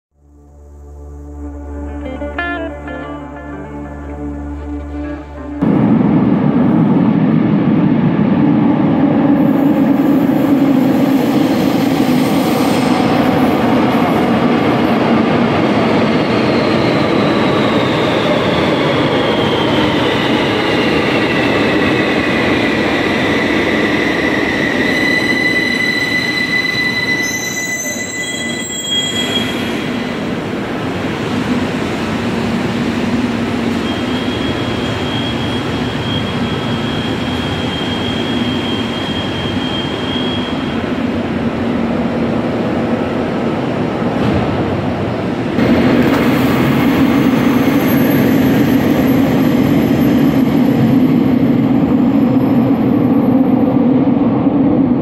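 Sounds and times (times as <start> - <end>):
train whine falling in pitch: 16.4 - 30.2.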